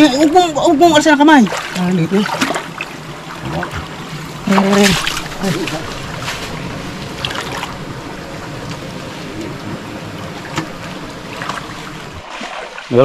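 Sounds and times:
river water rushing around waders: 0:00.0 - 0:13.0.

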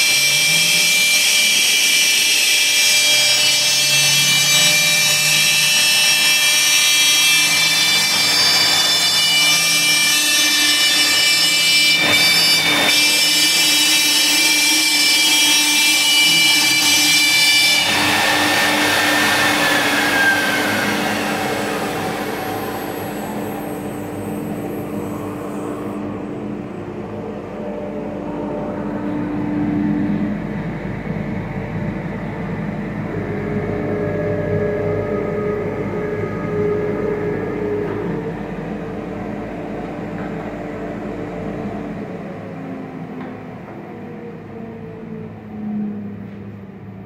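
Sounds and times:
router spindle whining: 0:00.0 - 0:26.2
dust collector humming: 0:00.0 - 0:42.3.

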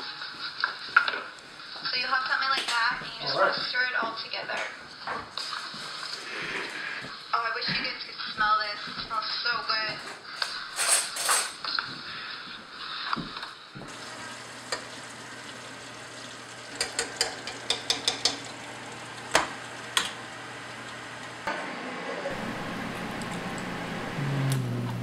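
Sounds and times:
hot oil sizzling: 0:13.8 - 0:21.5
tongs clicking on fryer basket: 0:16.8 - 0:18.5.

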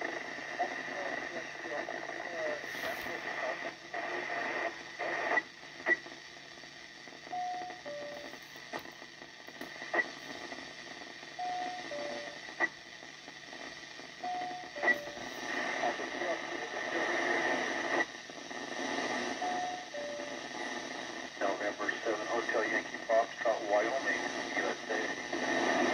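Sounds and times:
radio static hiss: 0:00.0 - 0:25.9.

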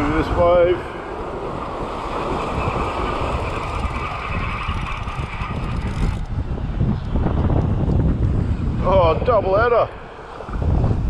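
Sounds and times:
wind rumble on microphone: 0:00.0 - 0:11.0
fishing reel whirring: 0:01.3 - 0:06.3.

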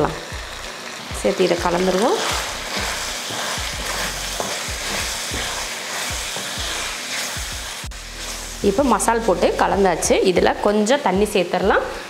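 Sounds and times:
chicken sizzling in a pan: 0:00.0 - 0:12.0
wooden spatula stirring: 0:01.8 - 0:07.6.

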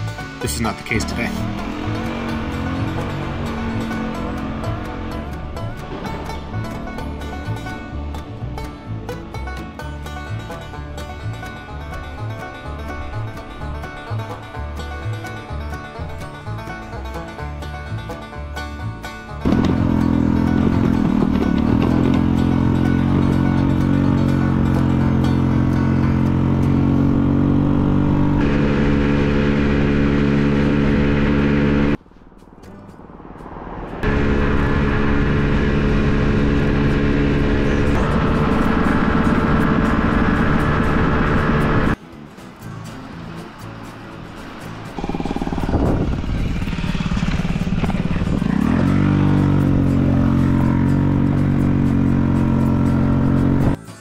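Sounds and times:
scooter engine running: 0:19.4 - 0:32.0, 0:34.0 - 0:42.0, 0:45.0 - 0:53.8.

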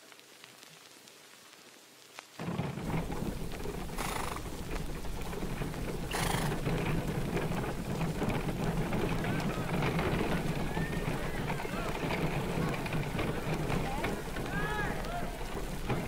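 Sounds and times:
faint ticks: 0:02.1 - 0:16.0
horse snorting: 0:02.9 - 0:08.8.

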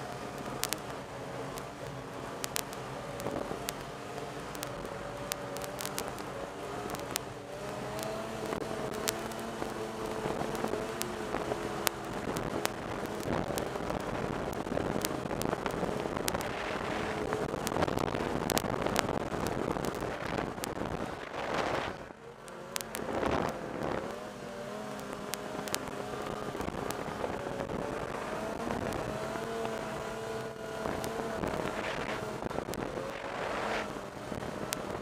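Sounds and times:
snowmobile engine running: 0:00.0 - 0:35.0
sharp clicks: 0:00.4 - 0:16.5
rushing wind noise: 0:07.9 - 0:22.2, 0:22.9 - 0:24.2, 0:25.2 - 0:35.0.

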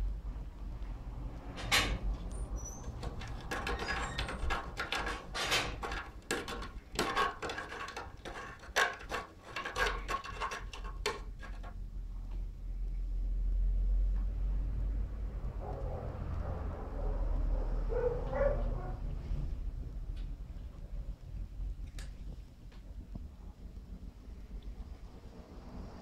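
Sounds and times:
cat claws scratching wood: 0:02.2 - 0:11.8.

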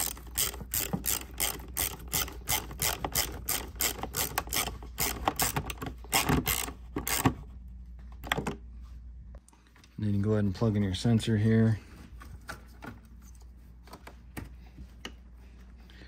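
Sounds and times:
ratchet wrench clicking: 0:00.0 - 0:07.3.

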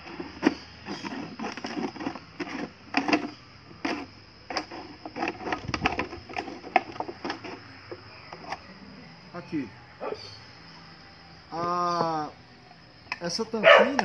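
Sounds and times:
knife sawing through plastic bottle: 0:00.0 - 0:07.6.

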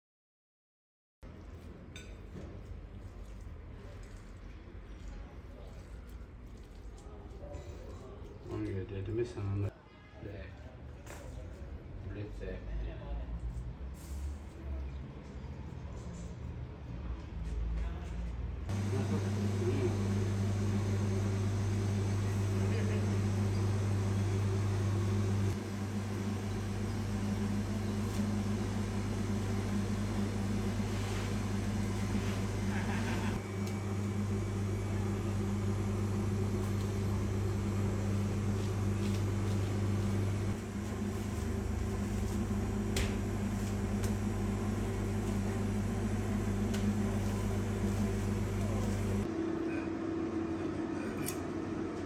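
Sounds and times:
electric motor hum: 0:18.7 - 0:49.4.

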